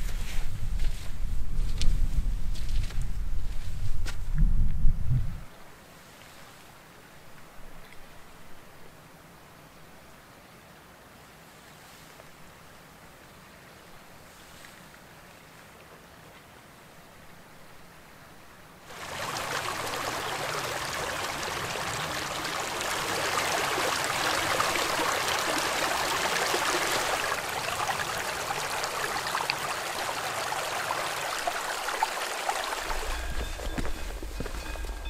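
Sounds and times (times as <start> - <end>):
stream flowing over stones: 18.8 - 35.0
low rumble: 32.8 - 35.0.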